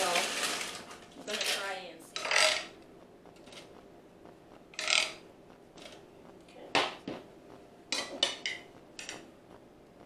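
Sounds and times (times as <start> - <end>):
plastic spoon scraping and knocking pan: 4.8 - 5.2.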